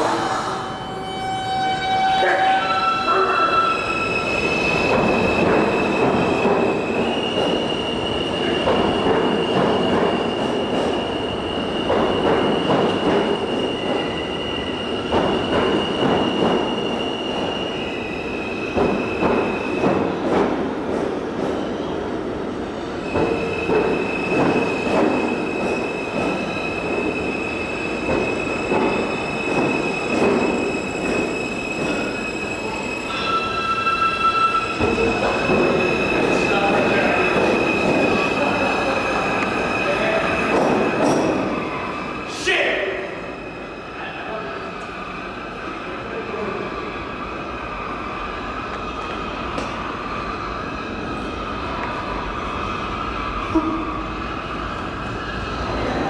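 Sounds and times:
train wheels rumbling on track: 3.2 - 56.0
high steady squeal: 23.0 - 40.5.

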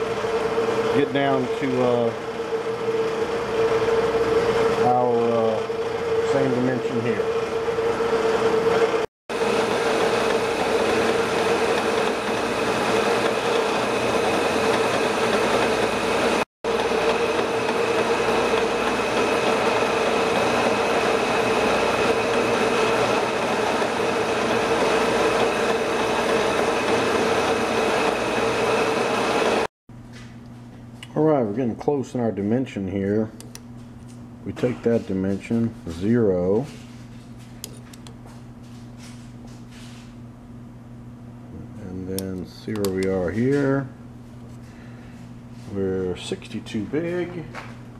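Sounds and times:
metal lathe whining: 0.0 - 29.7.

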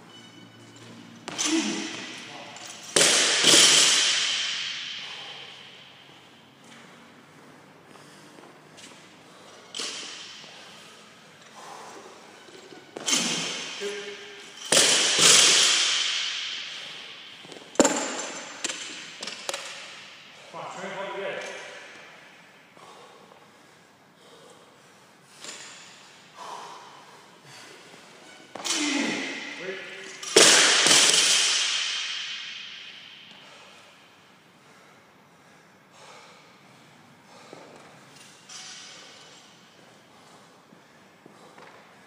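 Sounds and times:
barbell crashing onto floor: 2.9 - 5.5, 13.0 - 13.9, 14.6 - 20.0, 28.6 - 33.2.

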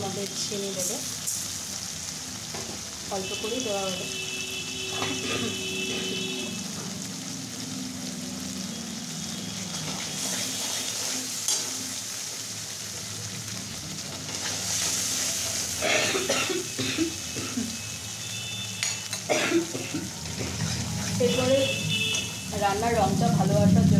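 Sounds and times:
spice paste sizzling in hot oil: 0.0 - 23.8
metal spatula scraping: 20.3 - 22.4.

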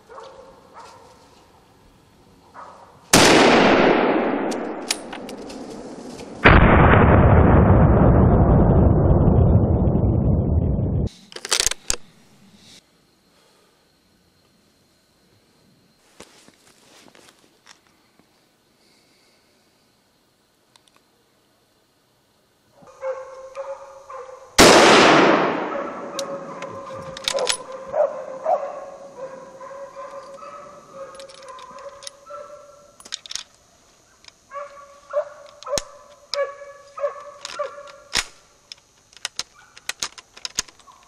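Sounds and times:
rifle shot echoing: 3.2 - 8.2, 24.6 - 27.7
dogs barking and baying: 22.8 - 24.6, 25.7 - 32.9, 34.5 - 38.1.

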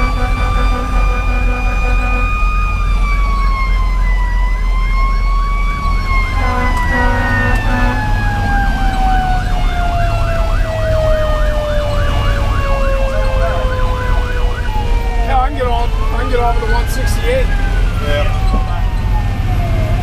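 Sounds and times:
air horn blasts: 0.0 - 2.8, 6.3 - 8.2
diesel truck engine running: 0.0 - 15.3
electronic siren yelping: 0.0 - 20.0
mechanical siren winding down: 0.0 - 20.0.

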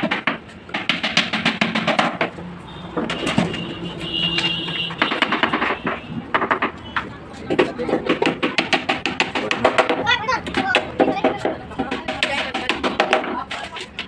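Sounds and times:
fast percussion beat: 7.9 - 13.4.

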